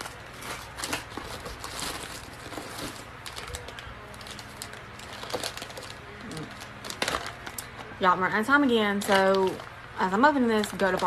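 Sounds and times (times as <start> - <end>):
plastic wrapping crinkling and tearing: 0.0 - 8.0, 8.8 - 11.0.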